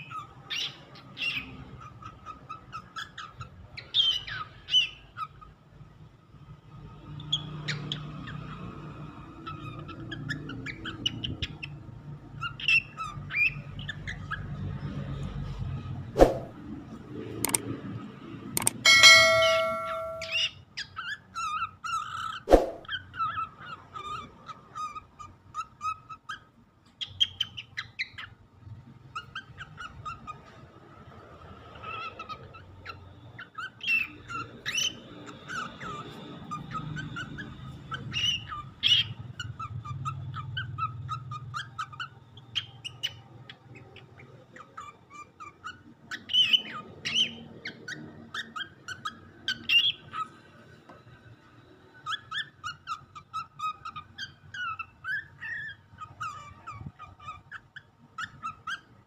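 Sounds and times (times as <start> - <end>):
cockatiel chirping: 0.0 - 5.4, 18.6 - 28.4, 31.8 - 50.4, 52.0 - 59.0
sharp clicks: 17.4 - 17.7, 18.6 - 18.8.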